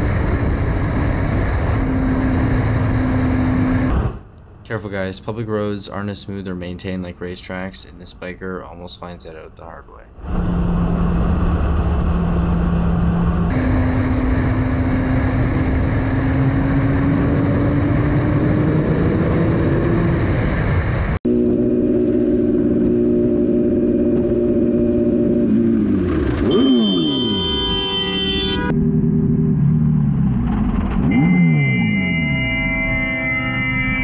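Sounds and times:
motorcycle engine accelerating: 0:00.0 - 0:03.9, 0:10.2 - 0:32.6
wind rush: 0:00.0 - 0:04.1
motorcycle engine humming: 0:10.6 - 0:33.2.

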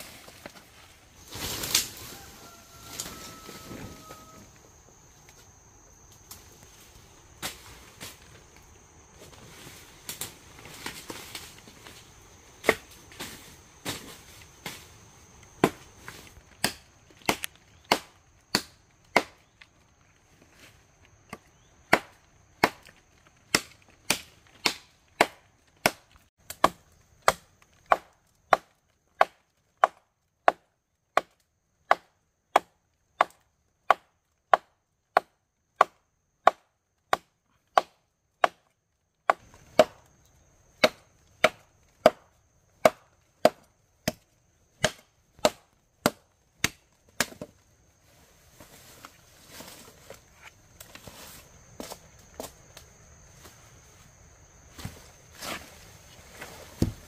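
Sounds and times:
machete chopping into log: 0:16.6 - 0:19.5, 0:21.8 - 0:22.9, 0:23.5 - 0:30.6, 0:39.3 - 0:40.0, 0:40.8 - 0:44.2, 0:44.8 - 0:47.5.

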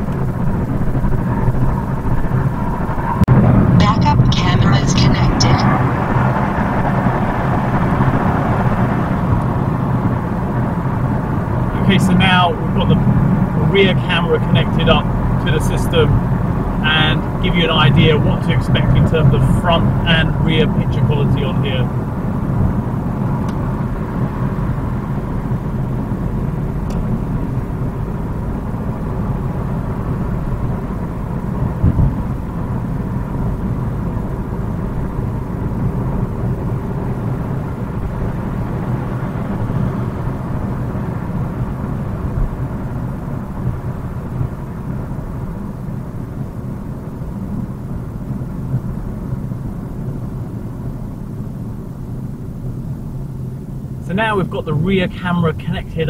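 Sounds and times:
road and engine rumble in car: 0:00.0 - 0:56.0
short thump: 0:31.8 - 0:32.2.

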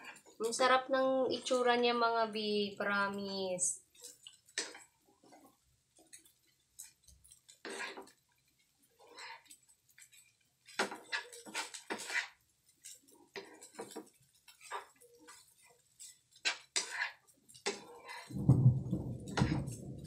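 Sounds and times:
spatula scraping frying pan: 0:03.8 - 0:18.3.

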